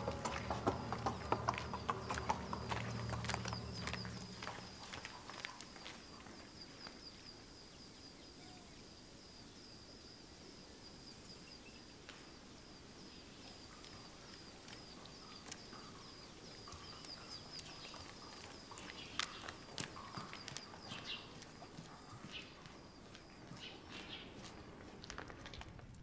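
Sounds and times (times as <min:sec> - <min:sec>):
steady high chirping: 0:00.0 - 0:05.8
soft footsteps: 0:00.0 - 0:06.5, 0:16.5 - 0:25.9.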